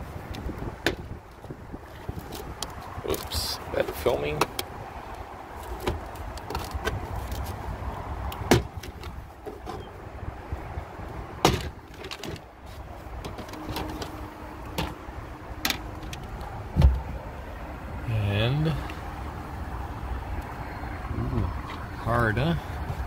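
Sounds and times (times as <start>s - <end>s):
dull thud: 16.7s - 17.1s.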